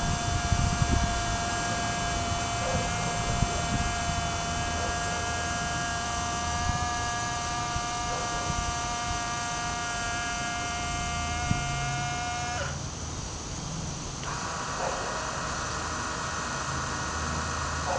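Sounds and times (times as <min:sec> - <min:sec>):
small electric motor whining: 0:00.0 - 0:17.9.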